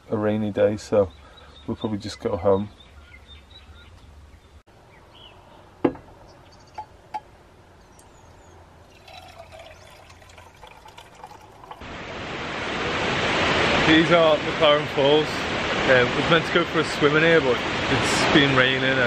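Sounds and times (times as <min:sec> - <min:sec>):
coffee pouring into a mug: 0:08.8 - 0:11.8
waterfall rushing: 0:11.8 - 0:19.0.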